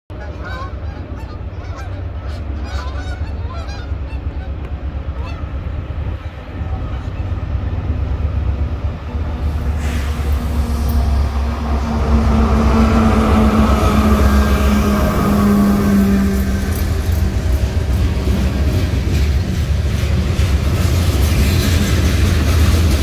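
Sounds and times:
geese honking: 0:00.1 - 0:05.6
diesel locomotive rumble: 0:00.1 - 0:23.0
wheel and rail noise: 0:00.1 - 0:23.0.

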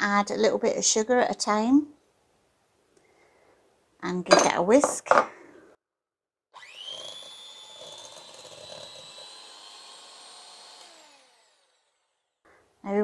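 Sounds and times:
electric hand mixer whine: 0:06.6 - 0:12.3.

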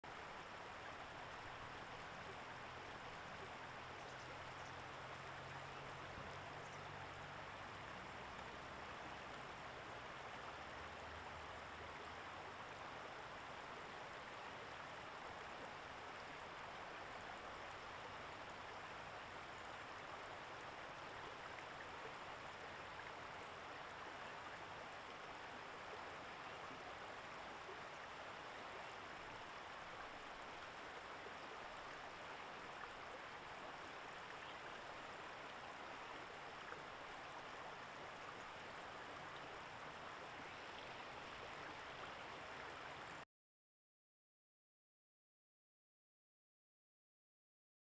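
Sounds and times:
river flowing: 0:00.0 - 0:43.2.

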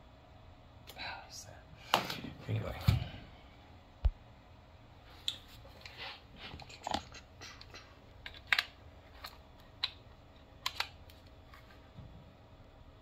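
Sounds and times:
light clicks taps and scrapes: 0:05.2 - 0:10.0.

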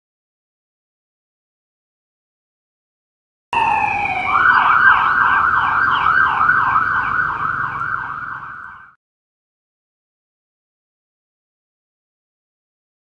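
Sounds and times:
police siren wailing and yelping: 0:03.6 - 0:09.0.

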